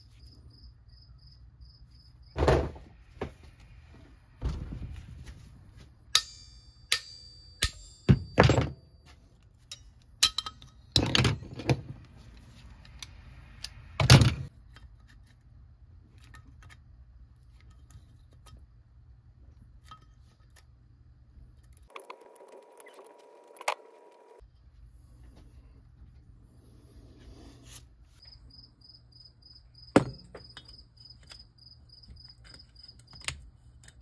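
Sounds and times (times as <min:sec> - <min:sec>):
metal clinks and knocks on a vise: 0:06.2 - 0:11.8, 0:30.0 - 0:31.0.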